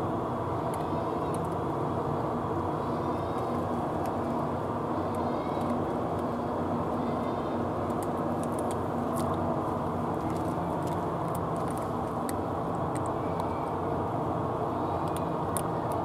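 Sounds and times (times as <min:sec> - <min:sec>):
engine humming: 0:00.0 - 0:16.0
cats crunching dry food: 0:07.8 - 0:13.6.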